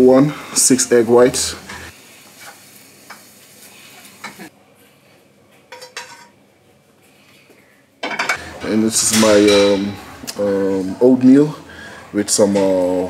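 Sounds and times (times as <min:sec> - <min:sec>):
eggs sizzling in frying pan: 0:01.0 - 0:04.5.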